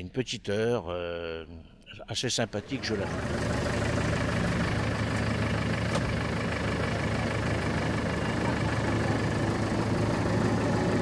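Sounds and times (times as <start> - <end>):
engine idling: 2.6 - 11.0.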